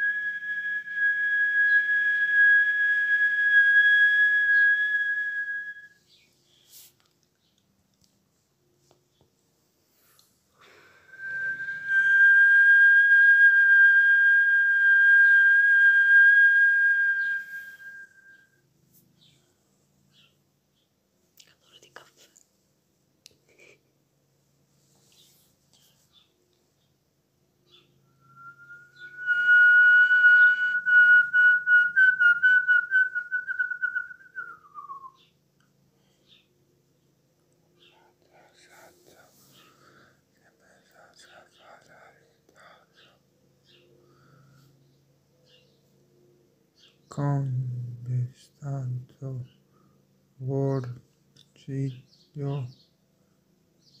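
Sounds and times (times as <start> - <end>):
person whistling high note: 11.0 - 18.5, 28.1 - 35.2.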